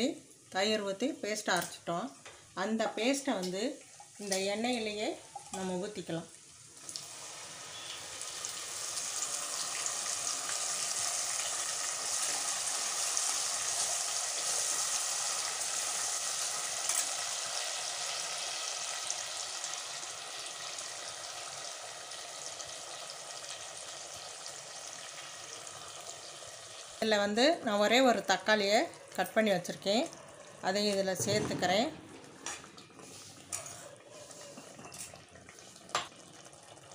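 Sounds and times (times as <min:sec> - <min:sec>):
paste sizzling in hot oil: 0:05.4 - 0:27.0
spoon stirring in a pan: 0:32.3 - 0:36.2.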